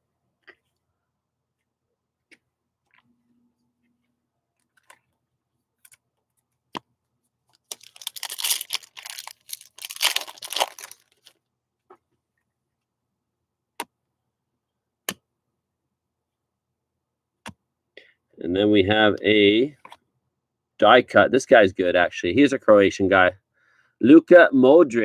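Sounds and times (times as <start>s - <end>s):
wrapper tearing and crinkling: 7.6s - 11.3s.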